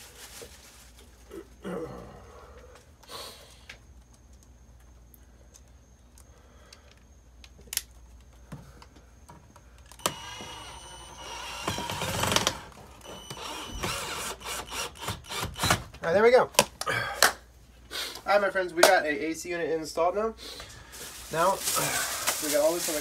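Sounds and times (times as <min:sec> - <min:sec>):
cordless drill whirring: 0:10.0 - 0:15.8.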